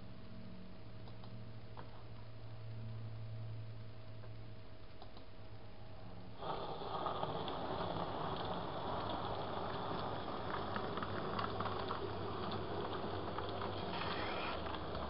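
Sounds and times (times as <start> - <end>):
model train running: 6.4 - 15.0
wheels clicking over rail joints: 7.0 - 14.0.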